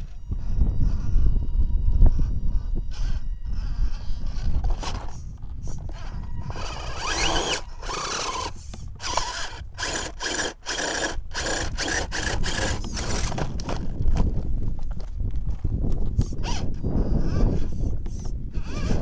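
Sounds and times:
electric motor whining in bursts: 0.0s - 13.8s, 16.4s - 19.0s
tyres scraping against rock: 4.2s - 16.8s.

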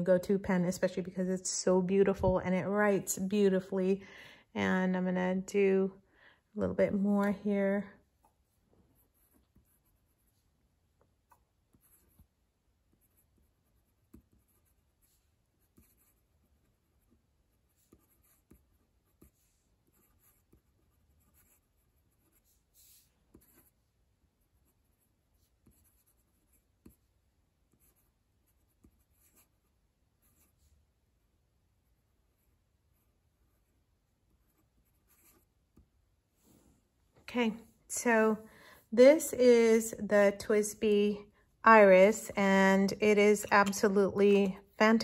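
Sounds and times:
pen nib scratching on paper: 9.0s - 10.4s, 11.2s - 23.8s.

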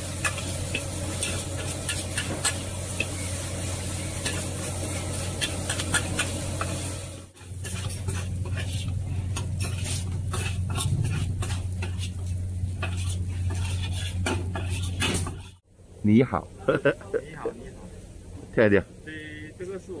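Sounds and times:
metal spatula scraping wok: 0.0s - 15.6s
noodles sizzling: 0.0s - 15.6s
steady low hum: 0.0s - 20.0s.

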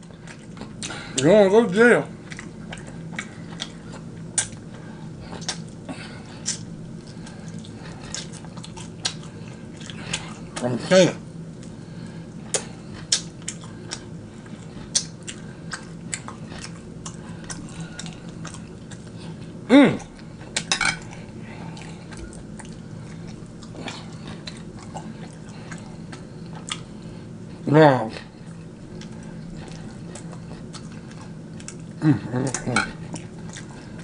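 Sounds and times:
chewing and mouth clicks: 0.0s - 1.0s, 2.2s - 10.7s, 11.5s - 27.6s, 28.3s - 34.0s
person humming: 19.7s - 20.1s, 32.0s - 32.8s.

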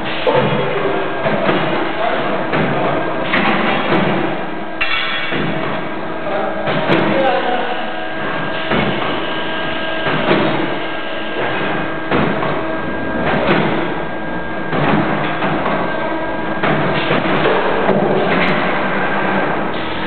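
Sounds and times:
machine hum: 0.0s - 20.0s
sharp machine knocks: 2.5s - 5.8s, 8.6s - 9.2s, 10.0s - 10.8s, 11.4s - 12.6s, 13.2s - 14.0s.

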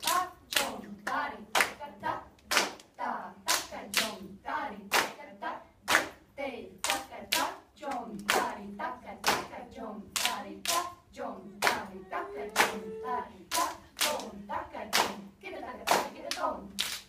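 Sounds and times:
rhythmic syllables recited in unison: 0.0s - 17.0s
hand claps: 12.5s - 12.9s.

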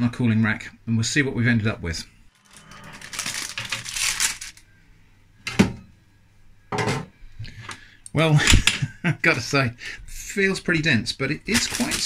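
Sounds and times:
baking parchment rustling: 2.4s - 4.6s, 11.2s - 12.0s.

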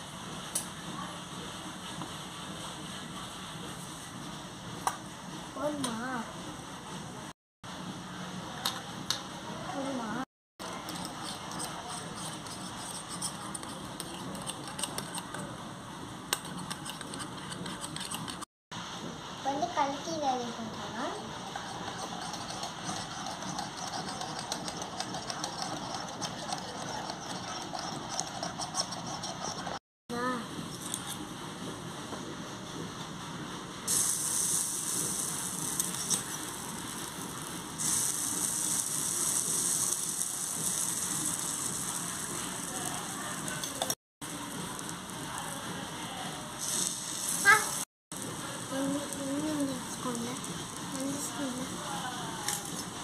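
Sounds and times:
batter sizzling on griddle: 33.9s - 53.0s.

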